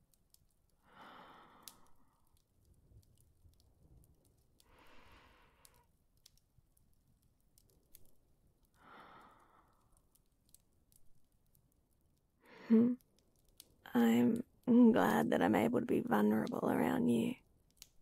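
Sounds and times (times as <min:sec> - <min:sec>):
faint clicks: 0:00.0 - 0:14.8, 0:17.6 - 0:18.0
woman sighing breaths: 0:12.5 - 0:13.0.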